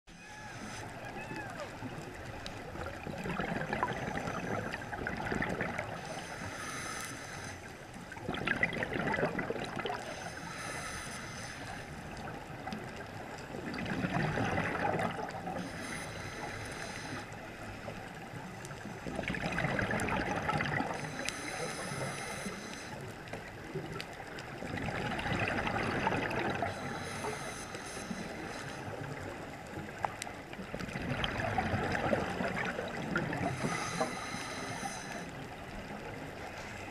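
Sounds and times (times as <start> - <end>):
exhaled bubbles burbling: 1.8 - 6.1, 8.1 - 10.2, 12.1 - 15.6, 19.0 - 21.5, 23.4 - 27.1, 29.0 - 34.0
regulator hissing inhale: 6.0 - 7.9, 10.0 - 12.1, 15.6 - 17.8, 20.9 - 23.3, 26.6 - 29.2, 33.4 - 35.6.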